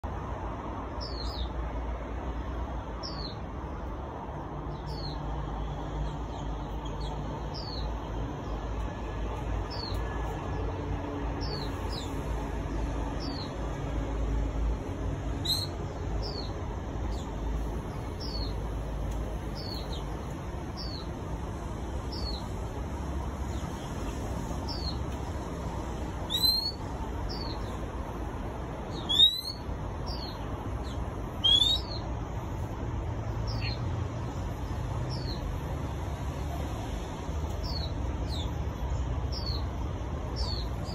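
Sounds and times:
bird whistling: 26.3 - 26.8, 29.0 - 29.6, 31.4 - 32.0.

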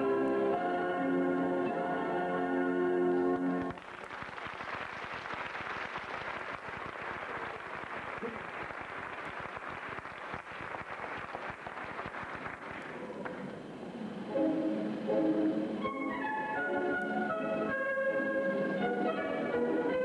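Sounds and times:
audience applause: 3.6 - 13.5.

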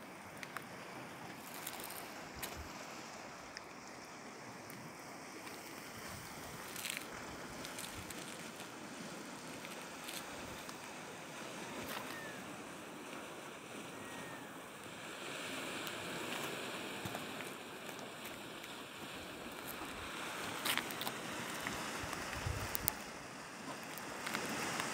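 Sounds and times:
sea waves washing against rocks: 0.0 - 24.9.

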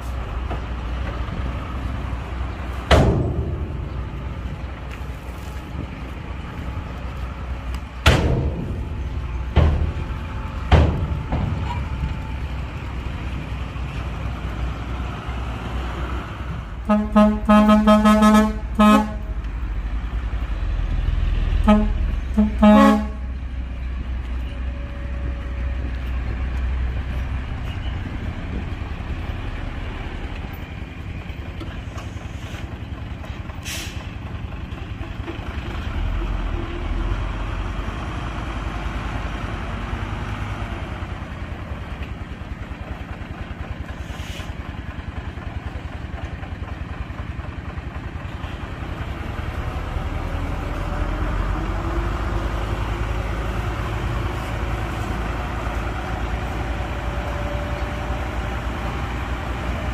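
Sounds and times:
diesel truck engine running: 0.0 - 59.9
truck horn blasts: 16.8 - 19.4, 21.6 - 23.4.

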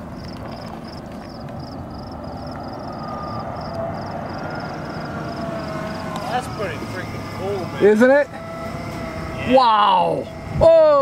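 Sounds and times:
wind rumble: 0.0 - 7.8, 10.2 - 11.0
insects chirping: 0.0 - 11.0.

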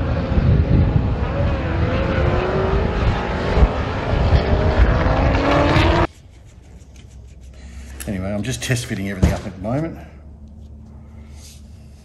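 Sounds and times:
race car engines accelerating: 0.0 - 6.1.

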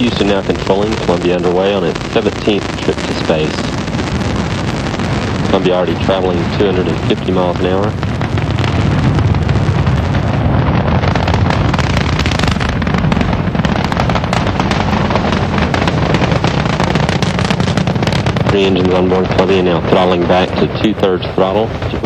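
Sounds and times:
rocket engines rumbling and crackling: 0.0 - 22.0.

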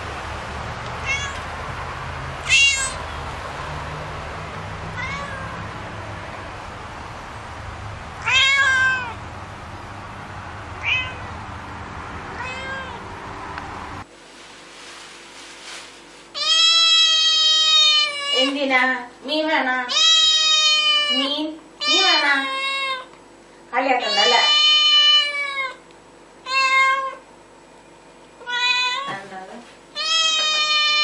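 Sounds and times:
cat meowing: 1.0 - 1.5, 2.4 - 3.0, 5.0 - 5.7, 8.2 - 9.2, 10.8 - 11.3, 12.4 - 13.1, 16.4 - 18.5, 19.9 - 23.1, 24.0 - 25.8, 26.4 - 27.2, 28.4 - 29.2, 30.0 - 31.0.

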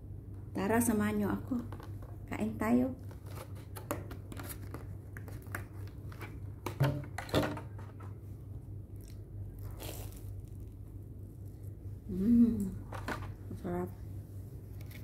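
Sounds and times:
bite into crusty bread: 9.0 - 10.9.

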